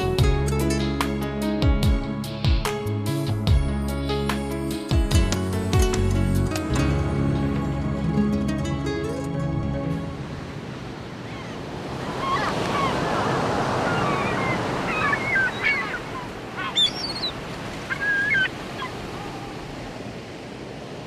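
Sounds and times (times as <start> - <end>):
ocean surf washing on beach: 9.8 - 21.0
gull cries: 11.2 - 19.6.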